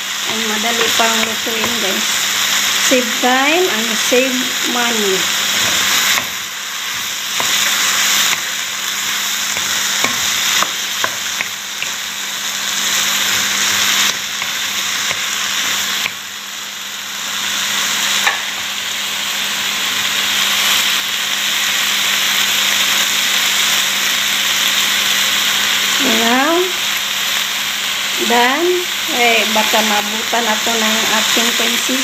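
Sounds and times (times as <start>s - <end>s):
vegetables sizzling in a pan: 0.0s - 32.0s
spatula tapping and scraping pan: 9.5s - 12.0s.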